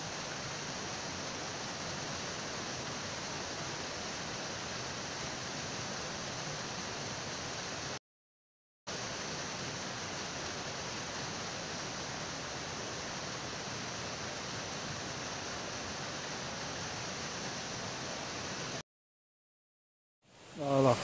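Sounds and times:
mountain stream rushing: 0.0s - 8.0s, 8.9s - 18.8s, 20.4s - 21.0s.

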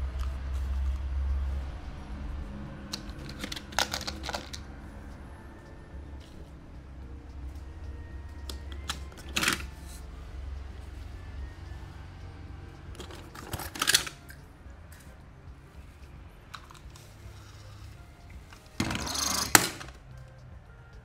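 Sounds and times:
toy cars clicking and clattering: 2.9s - 4.7s, 8.5s - 9.8s, 12.9s - 14.4s, 16.5s - 17.9s, 18.5s - 20.0s
rummaging rattle of toy cars: 3.0s - 4.6s, 8.8s - 10.0s, 13.0s - 14.4s, 18.5s - 20.0s.

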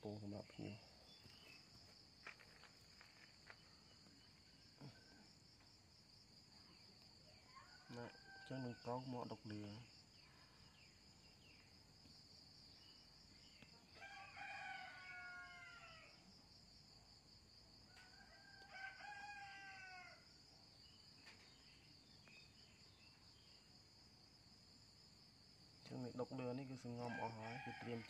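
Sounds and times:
high-pitched insect trill: 0.0s - 28.0s
rooster crowing: 7.5s - 9.1s, 13.9s - 16.2s, 17.9s - 20.4s, 27.0s - 28.0s.

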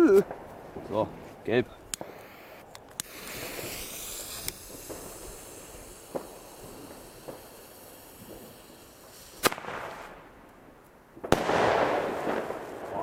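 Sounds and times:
firework fuse hissing: 1.3s - 13.0s
firework tube popping: 1.9s - 10.5s, 11.2s - 13.0s.

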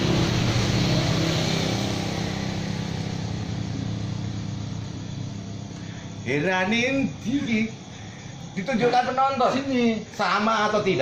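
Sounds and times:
vehicle engine droning: 0.0s - 8.4s.

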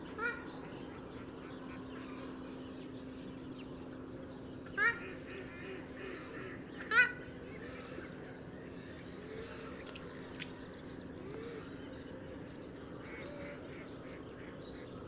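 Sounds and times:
steady low hum: 0.0s - 15.0s
waterbird calls: 0.1s - 2.4s, 4.7s - 8.2s.

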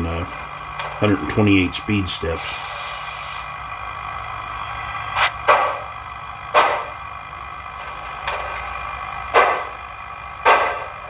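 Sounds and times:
model steam engine chuffs: 0.0s - 3.8s
steady background hum: 0.0s - 11.0s.

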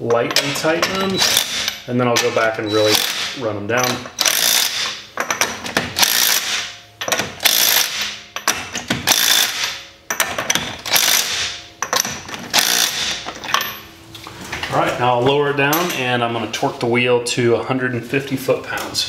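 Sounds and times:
hand ratchet clicking: 0.3s - 13.2s.

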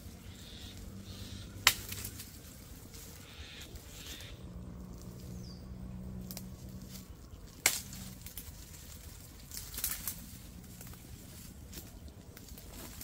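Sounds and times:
vines crackling and snapping: 0.0s - 13.0s
knife chopping through brush: 1.6s - 2.3s.

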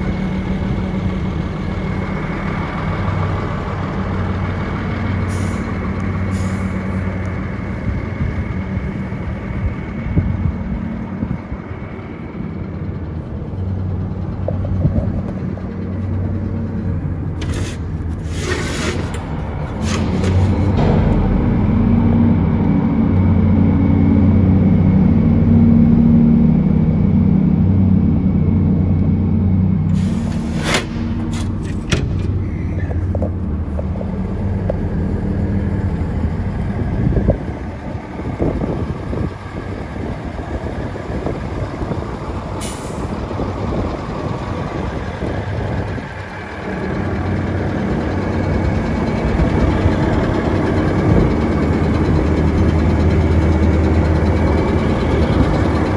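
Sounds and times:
truck diesel engine idling: 0.0s - 55.9s
air hiss burst: 29.9s - 31.1s.

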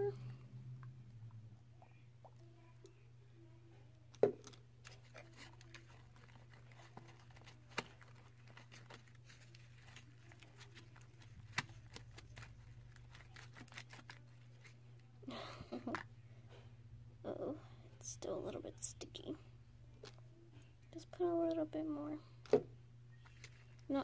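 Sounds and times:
steady low hum: 0.0s - 24.0s
stick stirring sticky slime: 4.1s - 14.8s.

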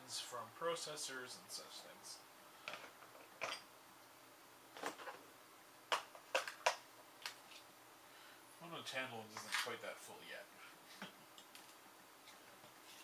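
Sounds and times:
plastic boxes clicking and knocking: 5.9s - 7.4s.

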